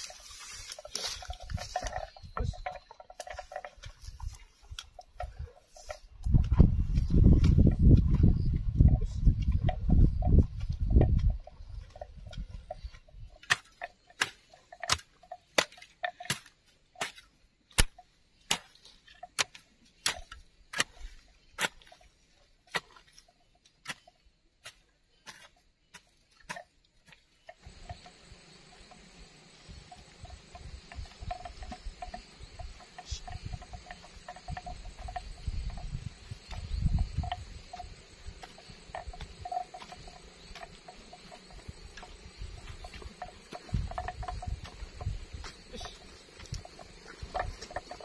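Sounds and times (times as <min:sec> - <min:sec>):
hoe chopping into earth: 0:13.4 - 0:21.9.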